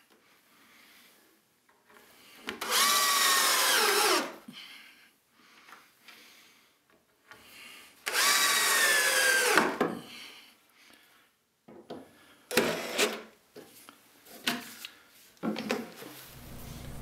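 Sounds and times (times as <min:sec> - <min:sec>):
cordless drill driving screws: 0:02.6 - 0:04.3, 0:08.0 - 0:09.8, 0:12.5 - 0:13.3.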